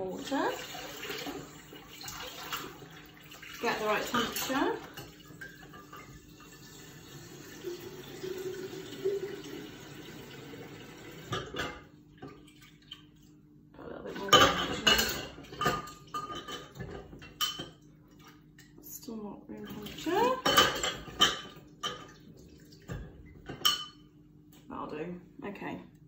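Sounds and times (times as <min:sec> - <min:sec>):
items clattering at sink: 0:00.1 - 0:09.8, 0:11.1 - 0:13.3, 0:14.1 - 0:18.8, 0:19.6 - 0:24.0
tap water running into vase: 0:00.1 - 0:11.6.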